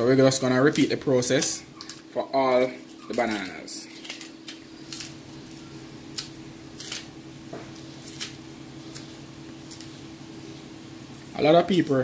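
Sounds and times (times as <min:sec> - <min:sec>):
steady low hum: 0:00.0 - 0:12.0
banana skin snapping and tearing: 0:03.1 - 0:10.0.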